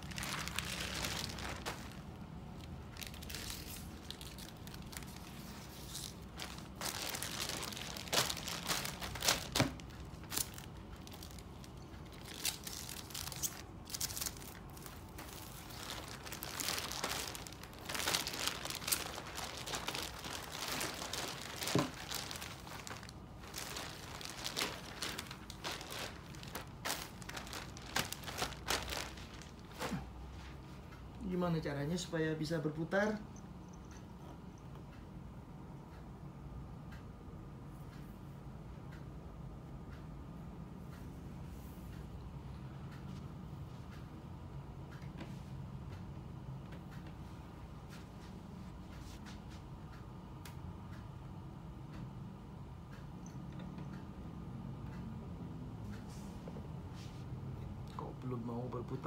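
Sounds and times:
plastic bag crinkling: 0.0 - 30.1.

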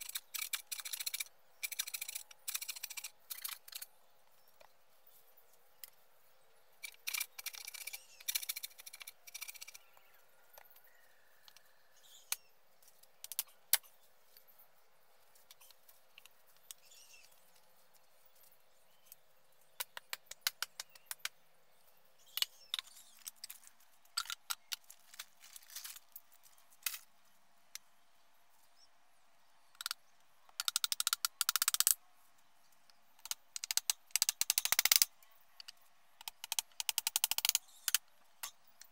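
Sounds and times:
bamboo poles knocking and clattering: 22.3 - 27.1.

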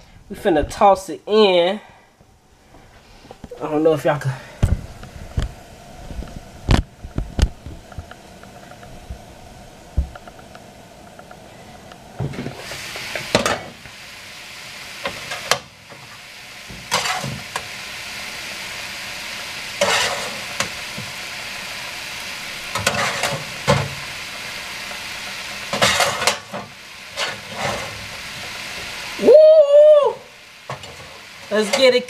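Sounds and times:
food sizzling in a skillet: 12.2 - 32.0
metal spatula scraping a pan: 16.9 - 17.5, 19.8 - 20.8, 22.7 - 23.9, 25.7 - 28.0.

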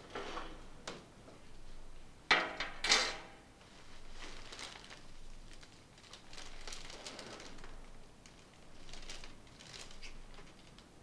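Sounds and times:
cellophane crackles: 3.6 - 11.0
cellophane rustling: 3.6 - 11.0.

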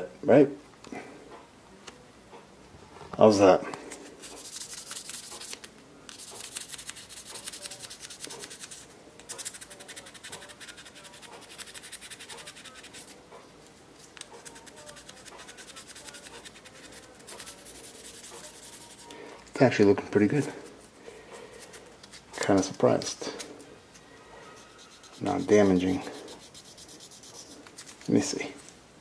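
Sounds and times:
sandpaper scratching on steel blade: 4.2 - 13.2, 14.4 - 19.1, 24.6 - 28.2.

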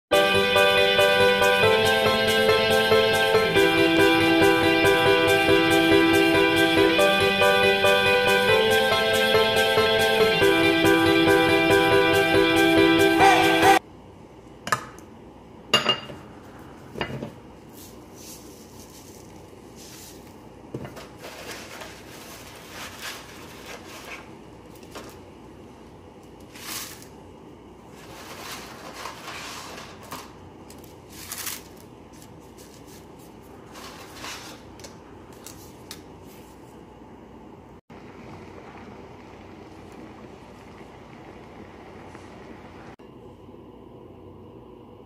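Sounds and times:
pot of water boiling: 37.9 - 43.6.

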